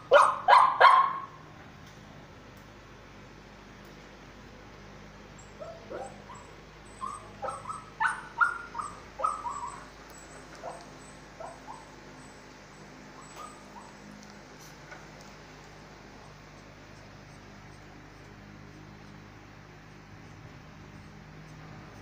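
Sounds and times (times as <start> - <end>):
dog whimpering and yelping: 5.4 - 12.3, 13.2 - 14.0.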